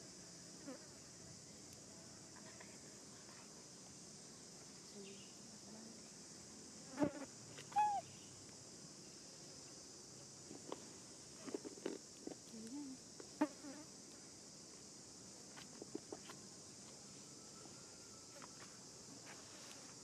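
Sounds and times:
high-pitched insect drone: 0:15.9 - 0:19.1.

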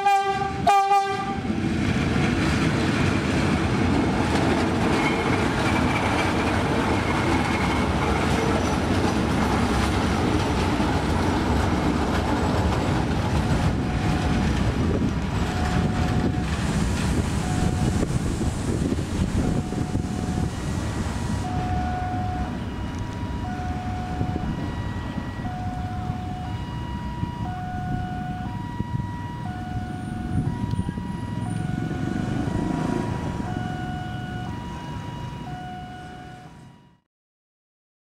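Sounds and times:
steady low rumble: 0:13.0 - 0:34.6
level-crossing two-tone chime: 0:19.4 - 0:37.0.

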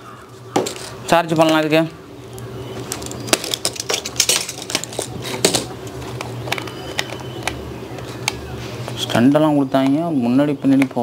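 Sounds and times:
plastic toy clicking and rattling: 0:02.9 - 0:08.4.

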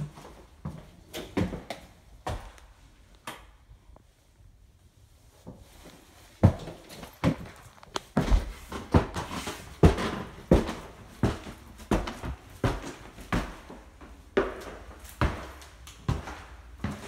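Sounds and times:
footsteps on wooden stairs: 0:06.4 - 0:17.0.

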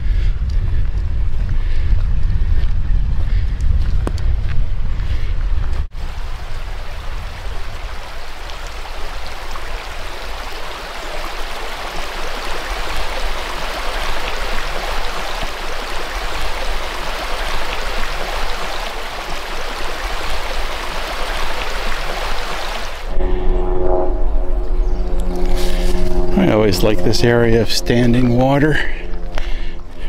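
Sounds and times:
low rumble: 0:00.0 - 0:07.9, 0:23.0 - 0:30.0
creek babbling over rocks: 0:06.0 - 0:23.1.

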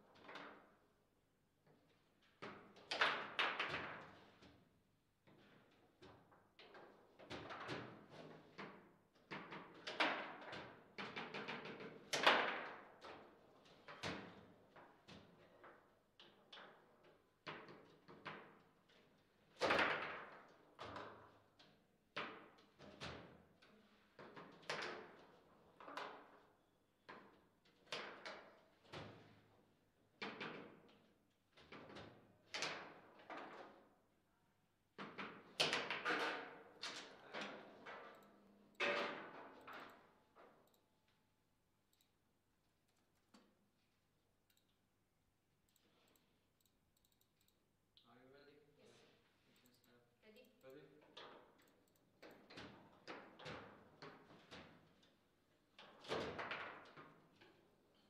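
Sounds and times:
table football ball knocks and clacks: 0:02.4 - 0:04.4, 0:07.2 - 0:13.0.

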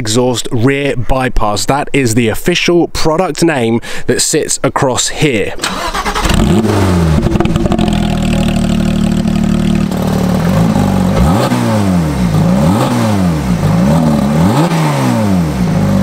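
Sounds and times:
sports car engine revving: 0:06.1 - 0:16.0.

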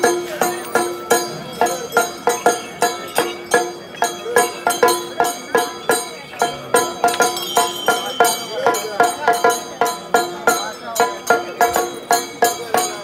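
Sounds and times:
held tone: 0:00.0 - 0:11.4
ringing percussive strikes: 0:00.0 - 0:13.0.

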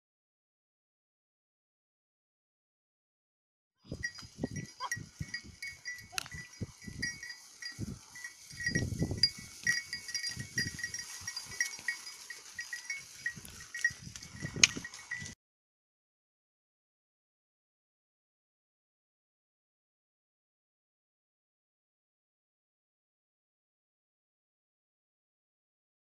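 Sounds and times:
sheep rustling through dry grass: 0:04.0 - 0:15.3.

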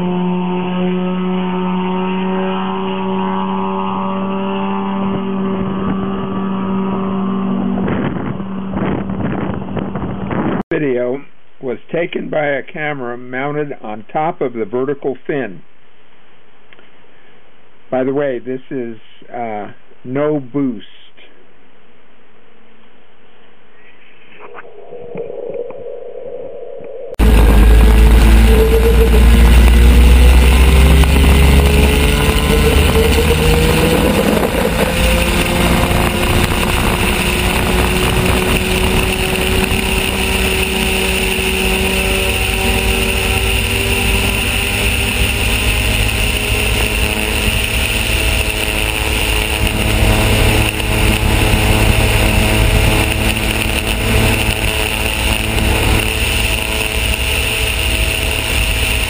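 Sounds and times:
aircraft engine and propeller: 0:00.0 - 0:10.4, 0:27.2 - 0:59.0.

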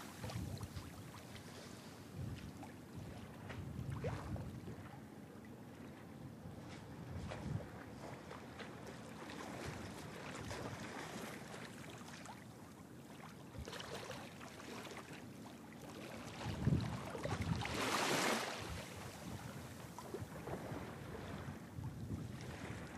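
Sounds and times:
wind buffeting microphone: 0:00.0 - 0:01.2, 0:02.1 - 0:04.8, 0:06.9 - 0:08.0, 0:16.4 - 0:22.9.

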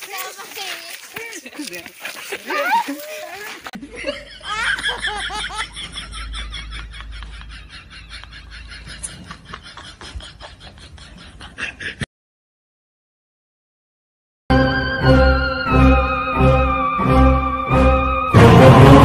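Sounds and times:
high-pitched laughter: 0:02.3 - 0:12.0.

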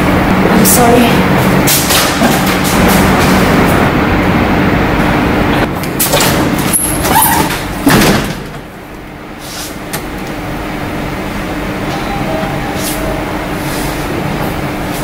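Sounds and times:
steady low hum: 0:00.0 - 0:15.0
door knocks and bang: 0:07.4 - 0:08.6.

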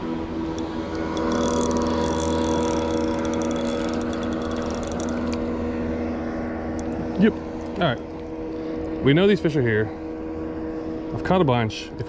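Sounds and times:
motorboat engine humming: 0:00.0 - 0:12.0.

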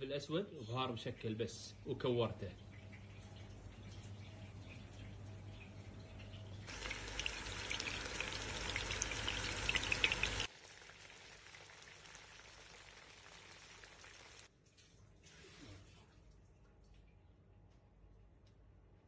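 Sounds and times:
meatballs sizzling in oil: 0:06.7 - 0:14.5.

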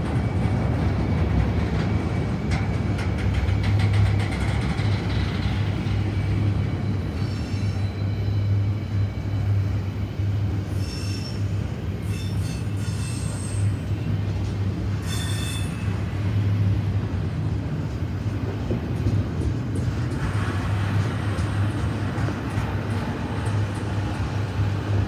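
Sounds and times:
train wheels rumbling on rail: 0:00.0 - 0:25.0
high-pitched wheel squeals: 0:06.9 - 0:08.7, 0:10.7 - 0:13.8, 0:15.0 - 0:16.0.

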